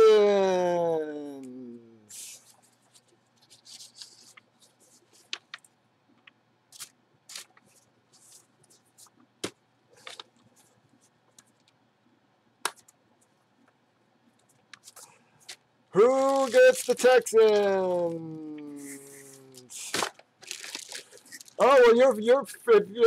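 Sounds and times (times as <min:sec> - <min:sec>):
paper and plastic crinkling: 0:02.1 - 0:10.8, 0:14.8 - 0:21.6.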